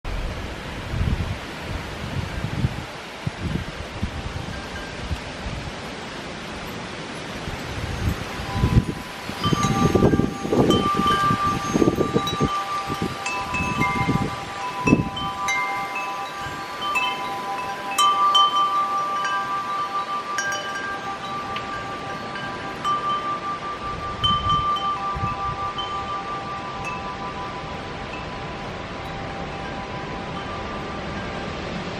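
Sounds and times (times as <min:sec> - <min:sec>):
wind buffeting microphone: 0:00.0 - 0:31.9
wind chimes ringing: 0:06.6 - 0:31.9.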